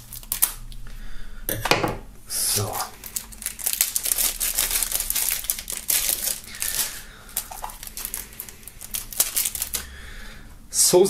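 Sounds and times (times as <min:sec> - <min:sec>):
plastic film crinkling: 0:00.0 - 0:00.7, 0:02.6 - 0:09.9.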